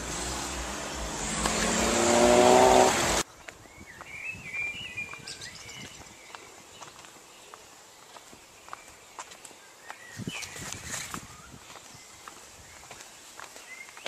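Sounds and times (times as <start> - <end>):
car engine accelerating: 0.0 - 3.2
bird singing: 0.7 - 14.0
faint footsteps: 5.1 - 14.0.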